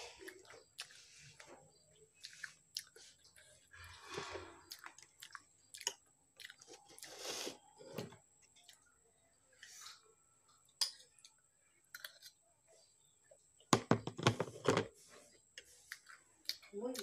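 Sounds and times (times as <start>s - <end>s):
person chewing: 0.1s - 7.7s, 11.9s - 12.4s, 15.6s - 17.0s.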